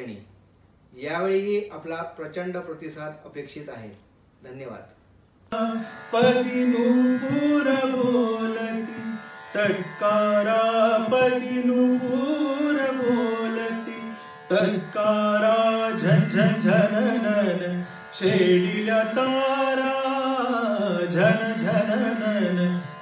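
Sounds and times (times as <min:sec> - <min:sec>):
man singing wordless held notes: 0:05.6 - 0:23.0.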